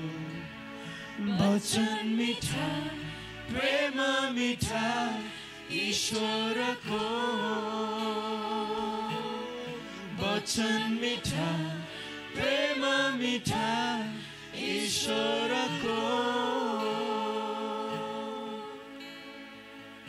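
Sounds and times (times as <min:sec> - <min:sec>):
person singing: 0:00.0 - 0:19.3
soft instrumental backing: 0:00.0 - 0:20.0.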